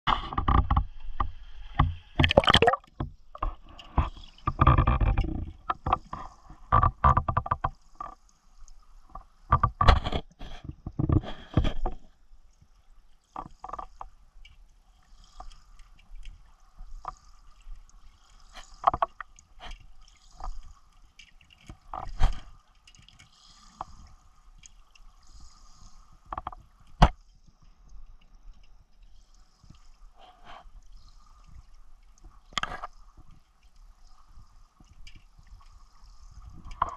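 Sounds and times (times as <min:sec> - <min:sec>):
underwater clicks and knocks: 0:00.1 - 0:12.2, 0:13.3 - 0:14.6, 0:18.5 - 0:25.1, 0:26.2 - 0:28.7, 0:31.4 - 0:36.9
water sloshing and splashing: 0:00.1 - 0:36.9.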